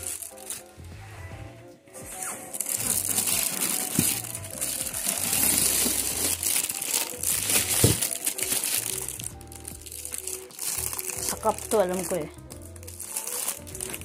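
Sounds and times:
plastic wrapping crinkling: 0.0s - 0.7s, 2.2s - 14.0s.

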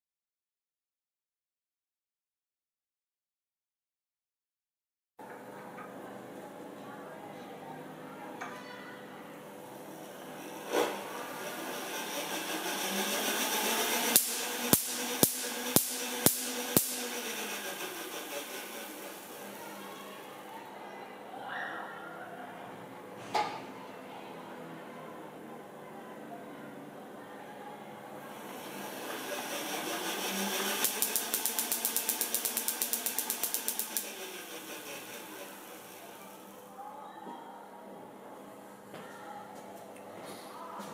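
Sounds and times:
spinning discs whirring hiss: 9.6s - 20.4s, 28.2s - 36.7s
sharp spark cracks: 11.6s - 19.6s, 28.6s - 36.6s.

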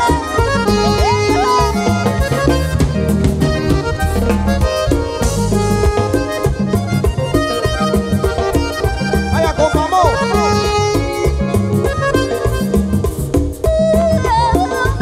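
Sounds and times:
button accordion: 0.0s - 15.0s
live band playing: 0.0s - 15.0s.

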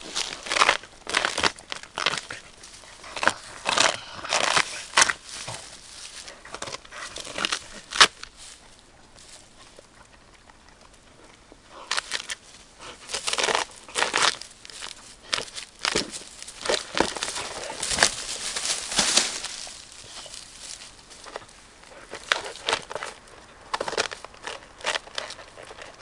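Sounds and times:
bamboo snapping: 0.0s - 2.4s, 3.2s - 8.6s, 11.9s - 12.4s, 13.1s - 21.5s
dog tearing bamboo husk: 0.0s - 8.4s, 11.8s - 26.0s.

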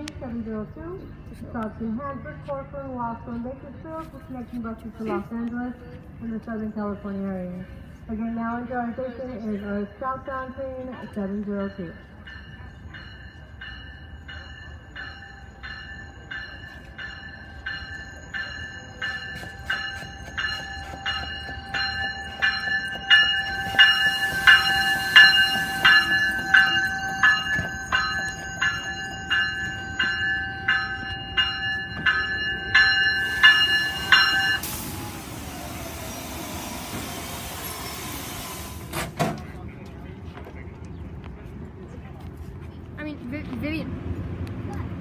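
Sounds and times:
train rolling rumble: 0.0s - 45.0s
train bell ringing: 6.2s - 38.8s.

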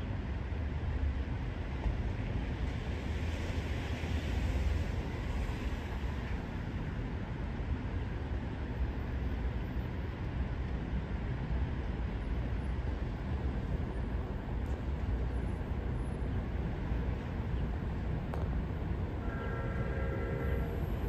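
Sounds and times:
distant vehicles rumbling: 14.4s - 21.0s
train approaching: 19.0s - 21.0s.

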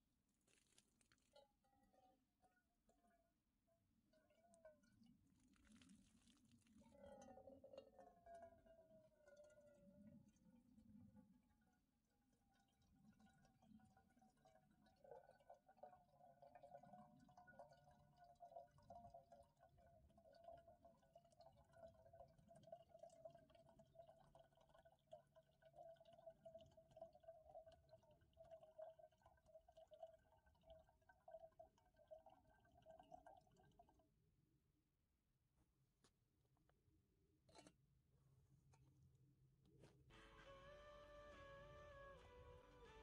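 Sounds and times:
water pouring into container: 0.0s - 3.3s, 4.0s - 34.5s.

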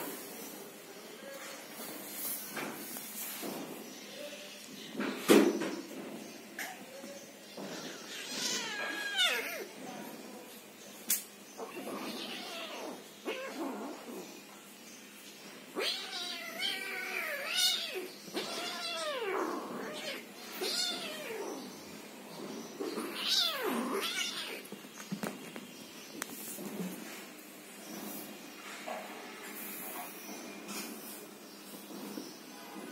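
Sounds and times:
kittens meowing: 7.6s - 9.7s, 15.8s - 21.6s, 22.8s - 24.7s.

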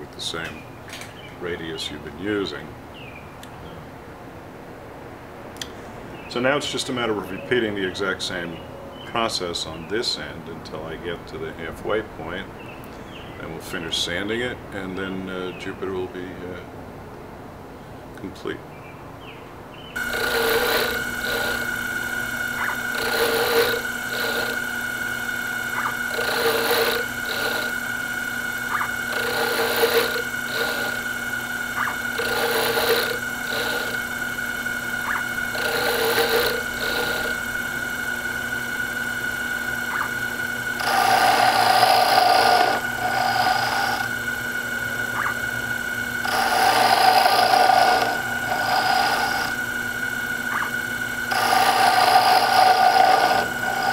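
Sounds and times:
cutter scraping spinning wood: 20.0s - 53.9s
lathe whining: 20.0s - 53.9s.

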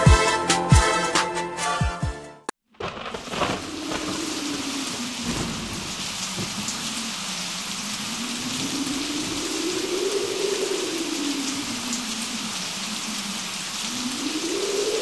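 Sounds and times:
steady hiss like rain: 3.1s - 15.0s.

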